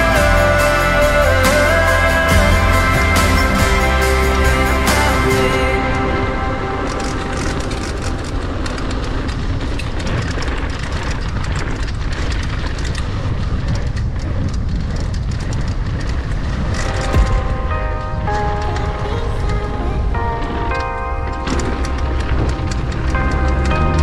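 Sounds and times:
wind rushing on microphone: 5.6s - 24.0s.

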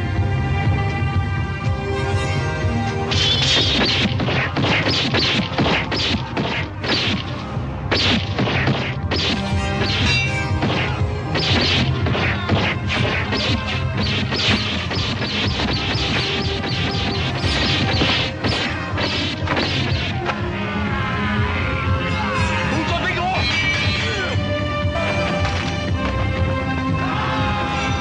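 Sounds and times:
film score with low bass: 0.0s - 28.0s
sword blades clashing: 3.1s - 7.4s, 8.0s - 20.2s.

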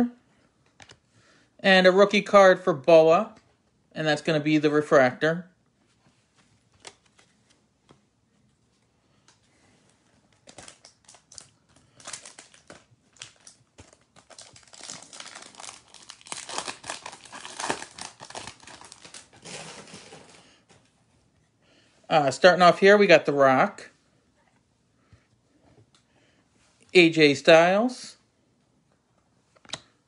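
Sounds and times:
foil wrapper crinkling: 10.3s - 20.4s.

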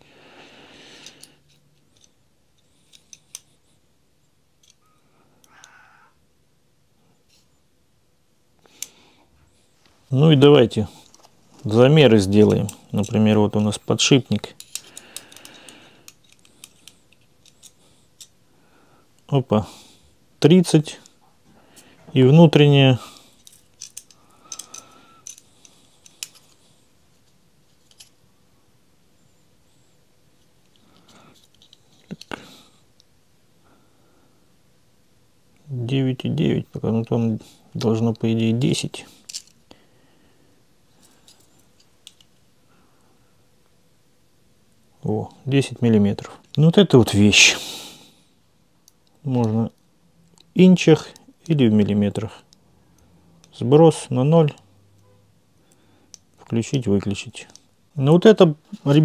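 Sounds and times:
small sharp metal clicks: 23.4s - 26.6s.

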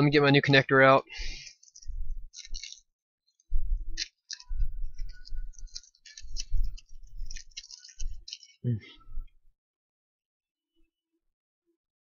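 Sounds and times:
small items clicking and rustling: 1.4s - 8.6s.

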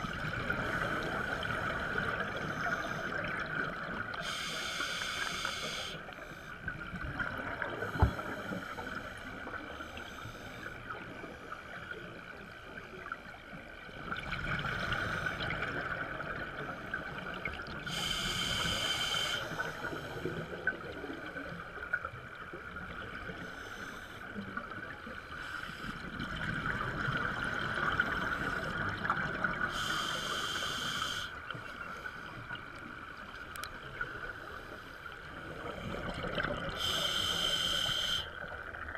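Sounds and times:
steady hiss: 4.2s - 6.6s, 17.9s - 20.4s, 29.7s - 31.5s, 36.7s - 38.4s.

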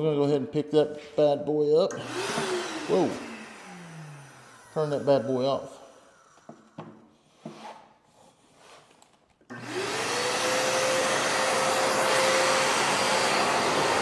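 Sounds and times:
shop vac motor running: 1.9s - 7.0s, 9.5s - 14.0s.

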